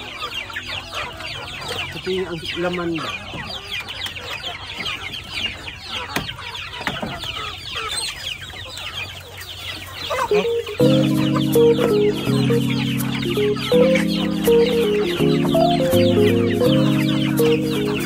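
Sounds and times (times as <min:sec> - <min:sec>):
chickens clucking: 0:00.0 - 0:18.0
background music with held chords: 0:10.3 - 0:18.0.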